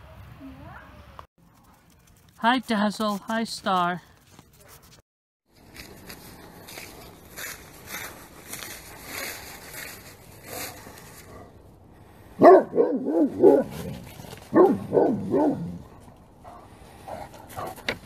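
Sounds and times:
footsteps through grass and leaves: 1.9s - 11.6s
dog barking: 12.4s - 13.9s, 14.5s - 15.8s.

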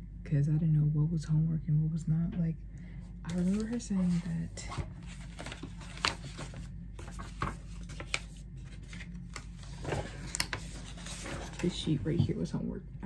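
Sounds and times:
low steady hum: 0.0s - 13.0s
paper rustling: 3.3s - 12.0s.

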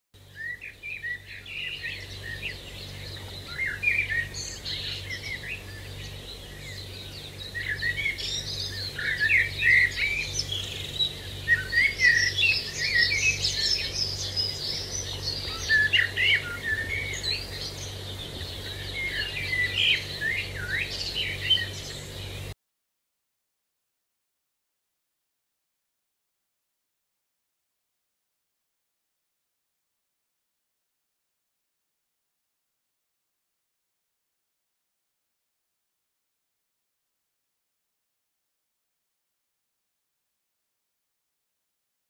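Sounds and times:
birds chirping: 0.2s - 22.6s
faint low hum: 0.2s - 22.6s.

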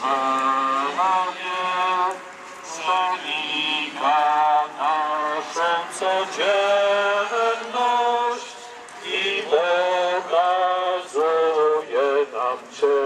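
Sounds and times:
voices singing a hymn: 0.0s - 13.0s.

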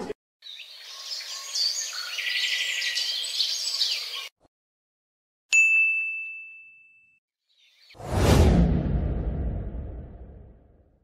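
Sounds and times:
birds chirping: 0.4s - 4.4s
high bell-like ding: 5.6s - 7.2s.

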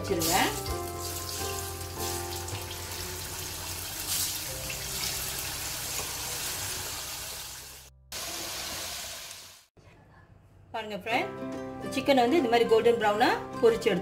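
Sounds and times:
chicken sizzling in hot oil: 0.0s - 9.7s.

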